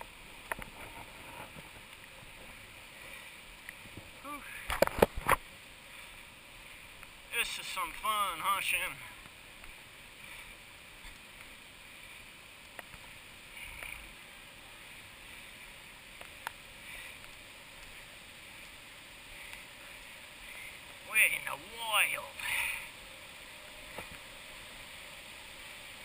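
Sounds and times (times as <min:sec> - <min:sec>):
river rushing: 0:00.0 - 0:26.0
faint clicks: 0:03.1 - 0:05.4, 0:12.6 - 0:14.2, 0:16.2 - 0:18.0, 0:19.3 - 0:19.7.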